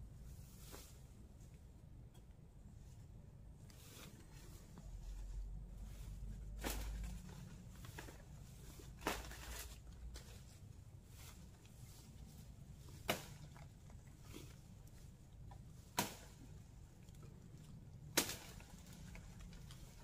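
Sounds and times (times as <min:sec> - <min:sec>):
tree branches rustling: 0:03.7 - 0:20.0
twigs snapping: 0:12.9 - 0:14.5, 0:15.5 - 0:20.0.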